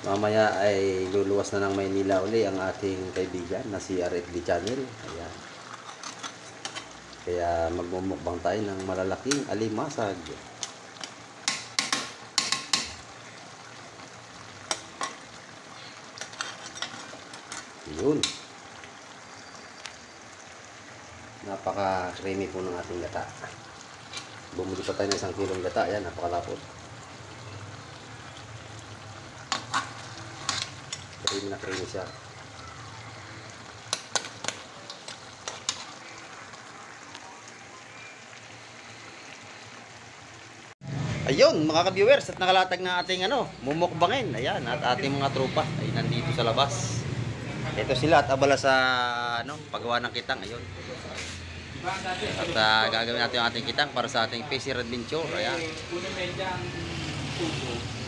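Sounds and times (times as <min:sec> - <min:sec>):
simmering pot hiss: 0:00.0 - 0:58.0
metal spatula scraping a pot: 0:05.6 - 0:07.0, 0:15.8 - 0:17.7, 0:29.5 - 0:32.0.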